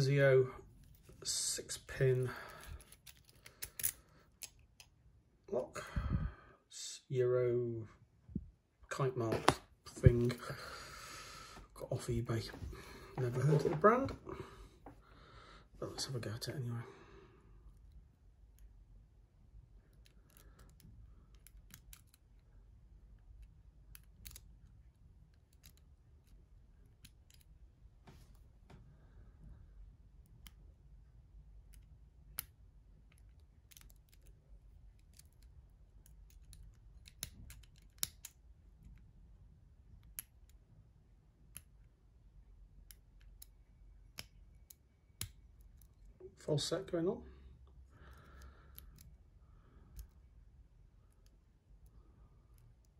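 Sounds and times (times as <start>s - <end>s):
metallic clicks of lock picking: 2.6s - 5.0s, 19.9s - 22.4s, 23.4s - 27.6s, 31.7s - 39.0s, 42.8s - 46.1s.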